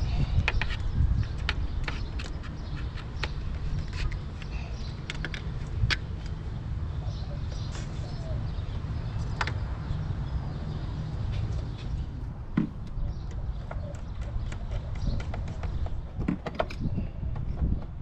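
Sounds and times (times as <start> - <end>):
hands and tools clicking: 0.4 - 6.4, 12.6 - 18.0.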